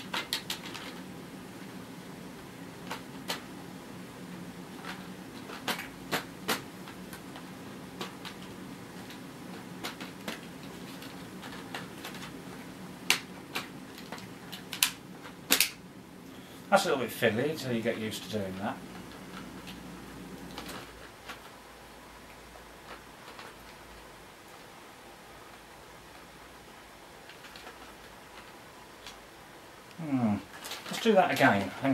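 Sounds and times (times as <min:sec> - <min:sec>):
plastic parts clicking: 0:00.0 - 0:01.0, 0:04.8 - 0:15.8, 0:20.4 - 0:21.6, 0:22.8 - 0:24.1, 0:27.2 - 0:29.2, 0:30.5 - 0:31.7
faint low hum: 0:00.0 - 0:31.9.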